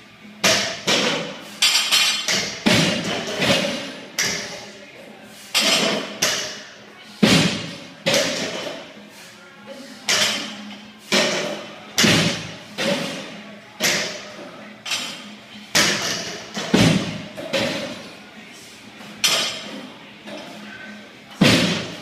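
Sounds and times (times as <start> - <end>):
barbells thudding on floor: 16.6 - 17.8, 21.4 - 22.0.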